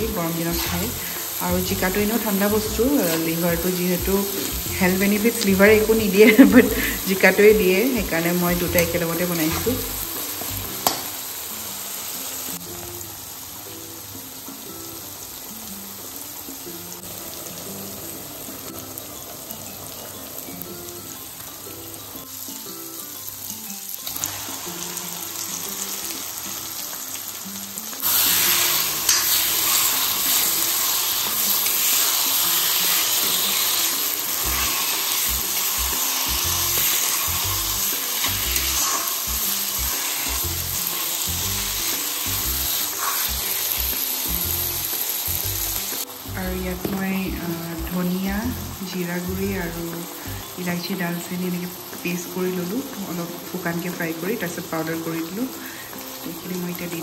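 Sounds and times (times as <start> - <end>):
loud frying sizzle: 0.0 - 57.0
soft background music: 0.0 - 57.0.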